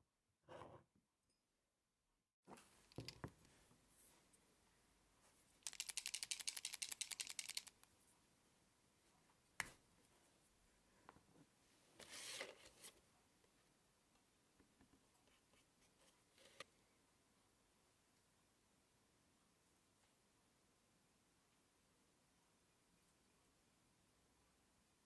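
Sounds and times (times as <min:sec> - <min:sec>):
paint pen ball rattling: 0:05.6 - 0:07.9.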